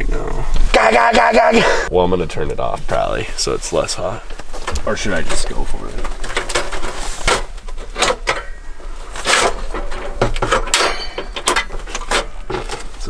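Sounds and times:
gloved hands rustling gear: 3.7 - 13.0.

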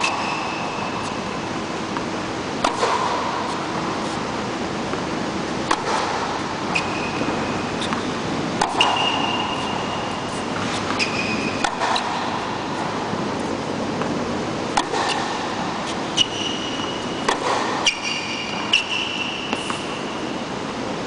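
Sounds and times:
tennis shoes squeaking on court: 0.0 - 1.3, 4.9 - 12.3, 14.9 - 20.4
tennis balls struck and bouncing: 0.0 - 20.3
steady hall noise: 0.0 - 21.0.

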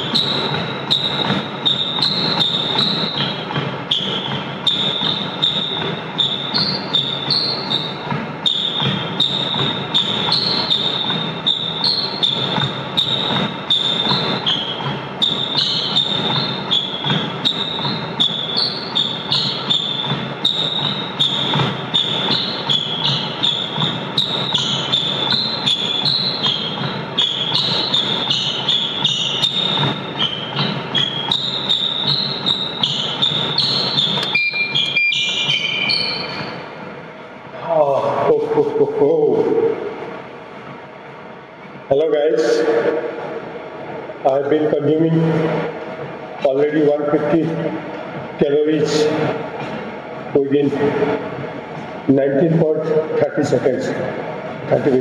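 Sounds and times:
footsteps on treadmill: 0.0 - 55.0
treadmill belt and motor: 0.0 - 55.0
short electronic beep: 34.0 - 36.5.

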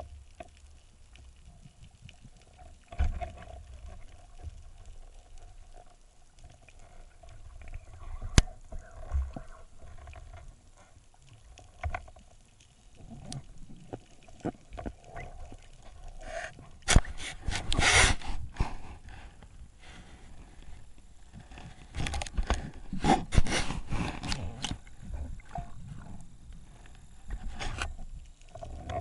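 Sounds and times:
underwater clicks and knocks: 11.6 - 12.4, 13.1 - 15.6, 21.3 - 23.5.

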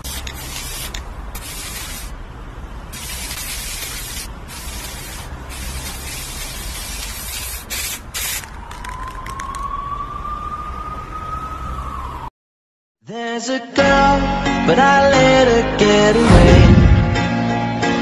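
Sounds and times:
spray can hissing: 0.0 - 2.2, 2.9 - 8.5.

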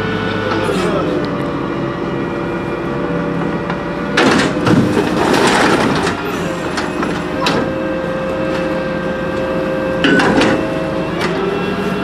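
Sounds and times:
truck engine whining: 0.0 - 12.0
hydraulic lift raising dumpster: 2.2 - 12.0
load clattering into hopper: 4.1 - 7.7, 10.0 - 11.4.

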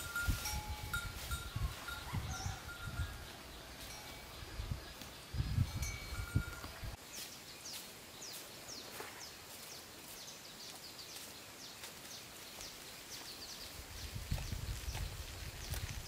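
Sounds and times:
small birds chirping: 1.3 - 16.0.

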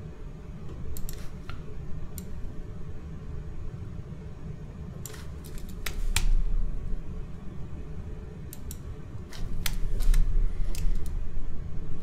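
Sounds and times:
mouse and keyboard clicks: 0.9 - 1.6.

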